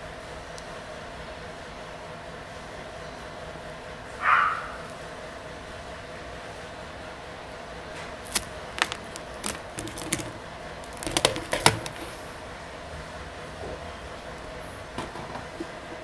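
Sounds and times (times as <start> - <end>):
hand tools clicking and tapping: 8.3 - 12.1.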